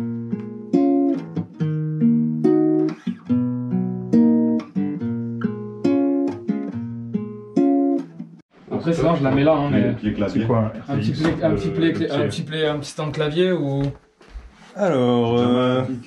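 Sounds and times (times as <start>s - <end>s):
classical guitar fingerstyle: 0.0s - 8.4s.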